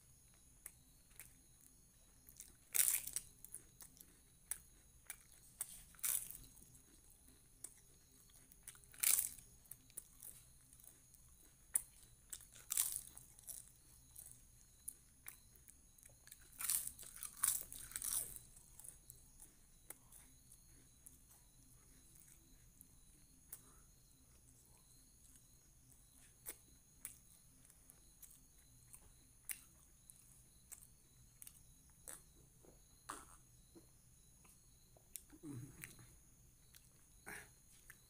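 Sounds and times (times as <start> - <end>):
chewing crackles: 0.1 - 38.0
crisp snack crunching: 2.3 - 10.4, 11.8 - 14.3, 16.2 - 18.9.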